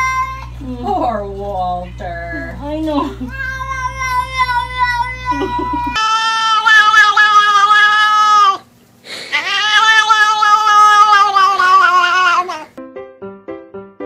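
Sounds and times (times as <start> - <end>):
cat meowing: 3.3 - 8.7, 9.3 - 12.8.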